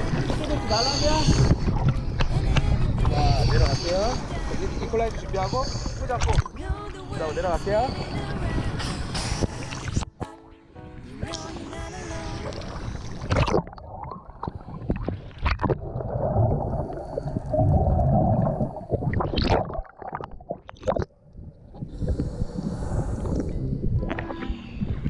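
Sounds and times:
low underwater rumble: 0.0 - 7.0, 11.9 - 25.0
water splashing: 11.2 - 21.2
gurgling exhaust bubbles: 12.4 - 21.2.

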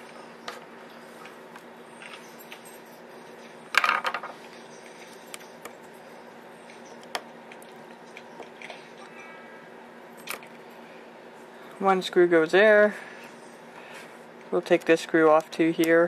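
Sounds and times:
faint steady hum: 0.0 - 16.0.

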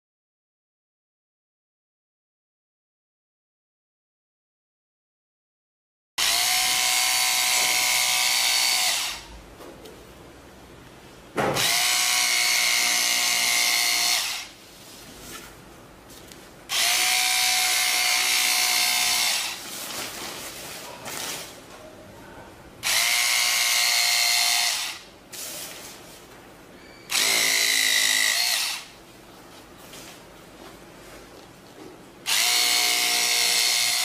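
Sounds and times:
electric fabric cutter whining: 6.2 - 9.3, 11.6 - 14.5, 16.7 - 19.6, 22.8 - 25.1, 27.1 - 28.9, 32.3 - 34.0.

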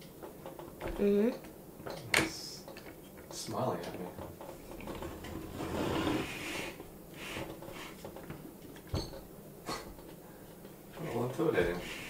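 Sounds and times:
plastic toy rustling scrape: 5.0 - 8.0.

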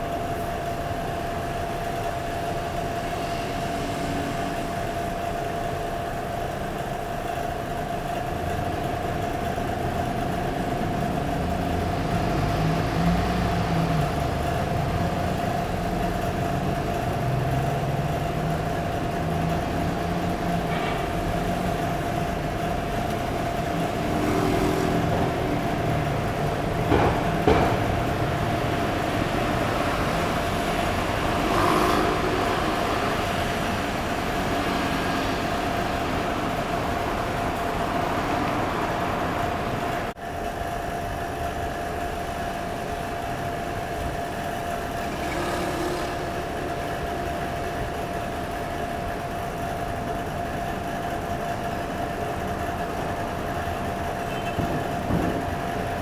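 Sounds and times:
road traffic hum: 0.0 - 56.0.

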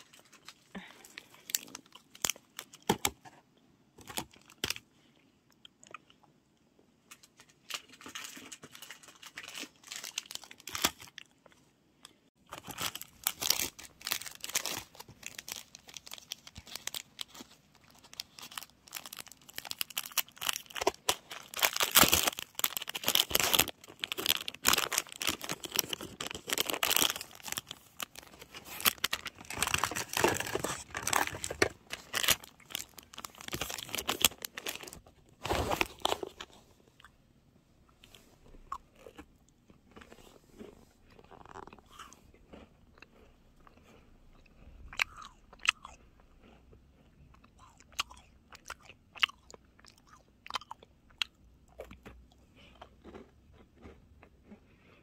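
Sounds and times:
crackling and crinkling rustle: 7.0 - 37.2.

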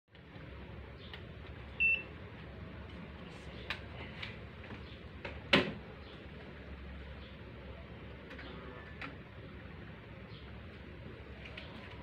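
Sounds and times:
thermometer beep: 1.8 - 2.1.

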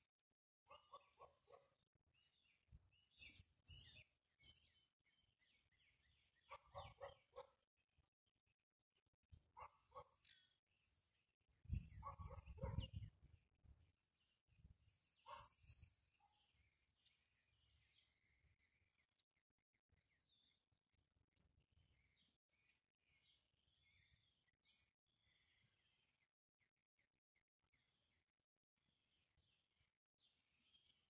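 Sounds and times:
birds chirping: 2.2 - 7.5, 11.7 - 13.4, 14.6 - 19.1.

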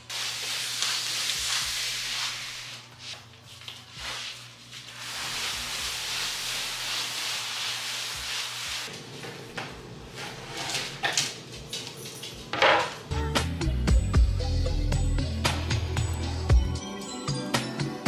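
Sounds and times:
cardboard box scraping across floor: 10.1 - 11.0.

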